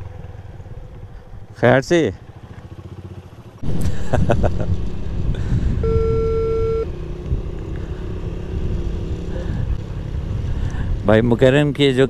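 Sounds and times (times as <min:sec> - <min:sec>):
car engine rumbling: 0:00.0 - 0:12.0
camera beep: 0:05.8 - 0:06.9.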